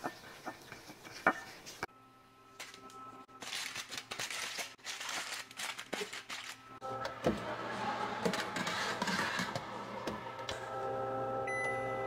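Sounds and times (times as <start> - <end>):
aluminium foil crinkling: 2.6 - 6.8.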